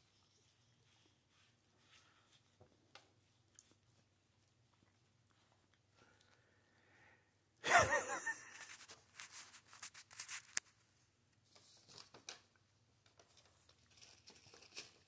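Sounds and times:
paper plate crinkling: 8.1 - 10.8, 13.1 - 15.0.

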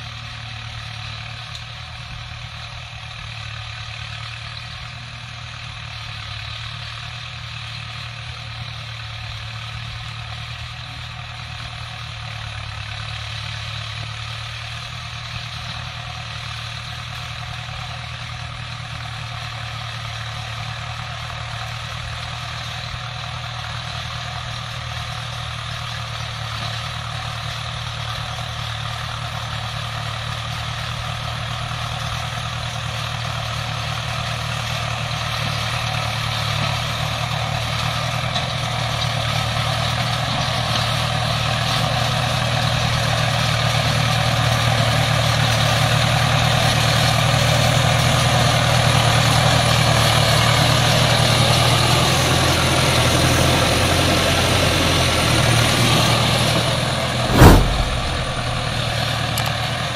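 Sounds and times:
sharp knock: 57.2 - 59.1.

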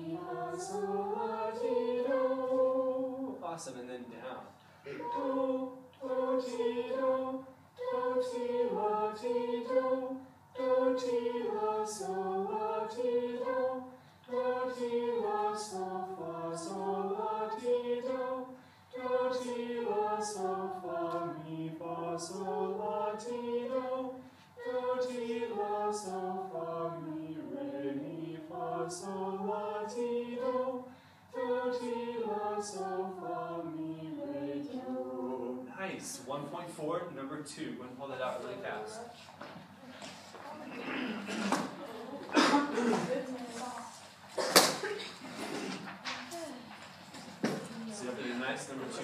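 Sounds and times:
choir singing unaccompanied: 0.0 - 3.7, 4.8 - 36.0.

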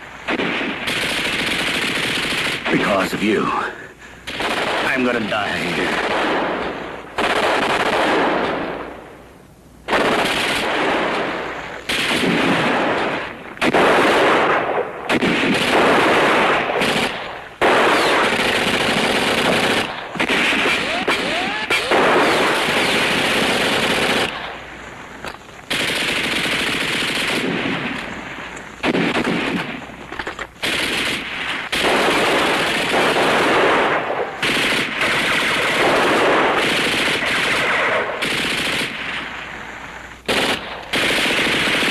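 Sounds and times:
rifle fire: 0.2 - 3.5, 4.2 - 9.2, 9.9 - 41.9
machine-gun bursts: 0.3 - 3.4, 9.9 - 10.8, 11.9 - 24.6, 25.7 - 28.0, 28.8 - 39.0, 40.3 - 41.9.

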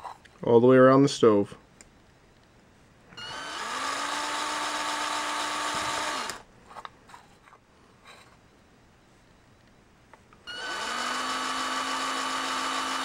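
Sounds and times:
cordless drill drilling aluminum: 3.2 - 6.4, 10.4 - 13.0.

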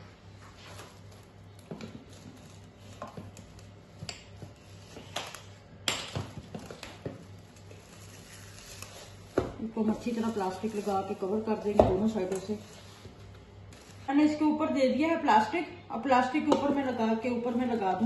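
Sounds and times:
cling film crinkling: 6.6 - 11.6, 12.2 - 14.1.

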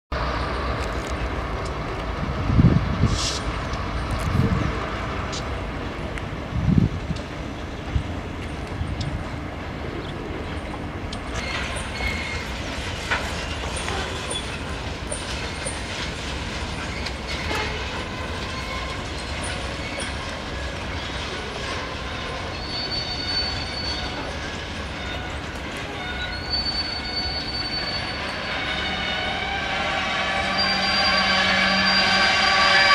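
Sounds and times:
low train rumble: 0.1 - 32.9
train wheels clicking over joints: 10.4 - 30.9
wheel squeals: 10.5 - 32.9.

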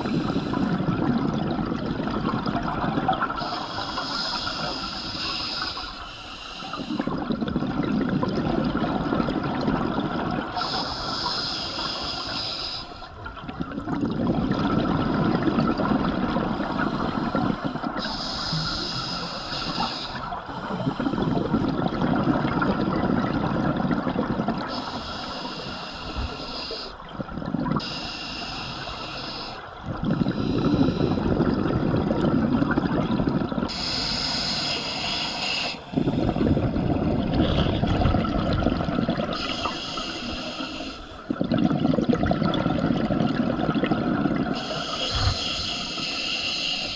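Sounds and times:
bubbles rumbling underwater: 0.0 - 5.3, 6.8 - 11.3, 13.1 - 25.4, 27.0 - 28.0, 29.6 - 34.0, 35.9 - 39.8, 41.2 - 46.0
regulator breathing hiss: 3.4 - 7.1, 10.6 - 13.1, 16.6 - 21.2, 24.7 - 27.0, 27.8 - 29.7, 33.7 - 36.5, 39.3 - 41.3, 44.5 - 46.9.

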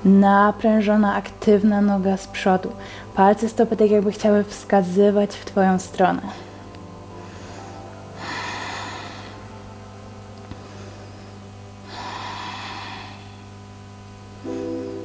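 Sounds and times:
calm sustained-tone music: 0.0 - 15.0
woman exhaling: 11.8 - 13.6.

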